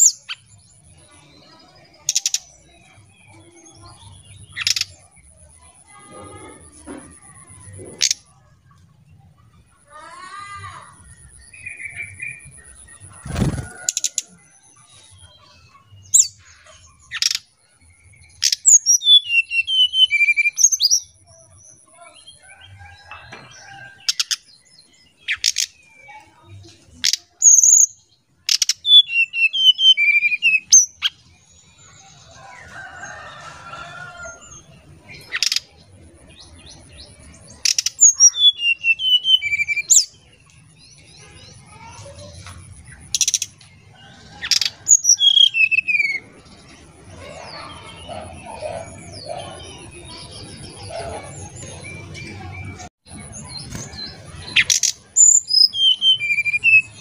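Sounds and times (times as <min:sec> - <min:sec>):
bird singing whistled notes: 0:18.0 - 0:21.2, 0:28.6 - 0:31.2, 0:37.8 - 0:40.2, 0:44.9 - 0:46.3, 0:55.2 - 0:57.0.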